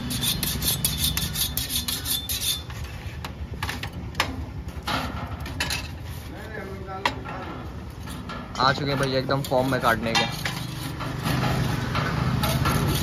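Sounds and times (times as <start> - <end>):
metal utensils scraping: 0.0 - 3.8, 7.0 - 13.0.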